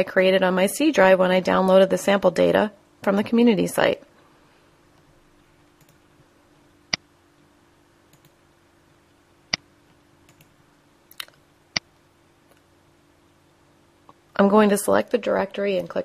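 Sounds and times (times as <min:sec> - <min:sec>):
faint steady hum: 0:00.0 - 0:16.0
computer mouse clicks: 0:05.8 - 0:06.0, 0:08.1 - 0:08.4, 0:09.5 - 0:11.9.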